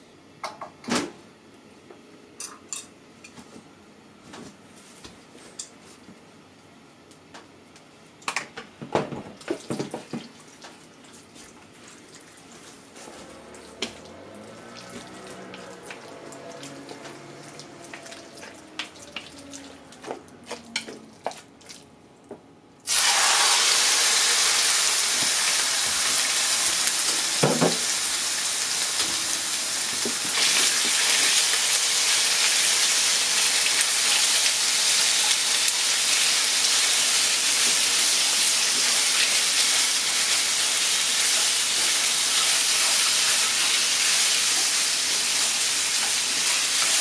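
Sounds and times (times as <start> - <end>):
chicken sizzling in hot oil: 13.5 - 17.8, 22.9 - 47.0.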